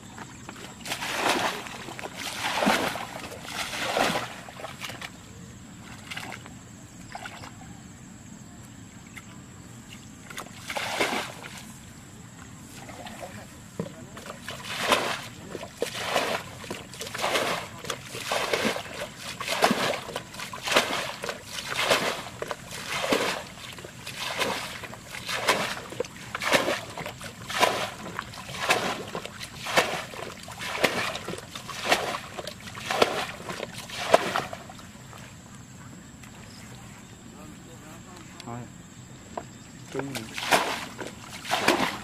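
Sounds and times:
water splashing from bucket: 0.0s - 5.2s, 10.3s - 11.7s, 12.7s - 35.3s, 39.9s - 42.0s.

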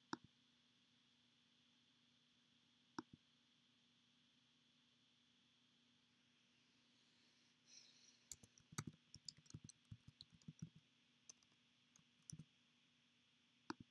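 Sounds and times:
faint keyboard key clicks: 8.3s - 12.4s.

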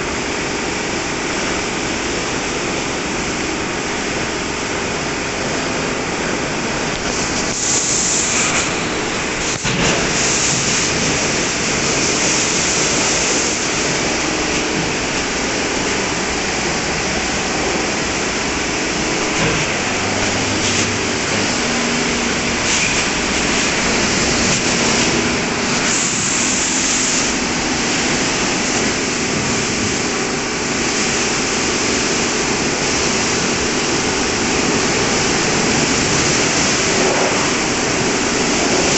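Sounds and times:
low machine hum: 0.0s - 38.9s
high-pressure jets hissing: 6.8s - 38.9s
spinning wash brushes: 7.0s - 38.9s
water spray: 7.0s - 38.9s.

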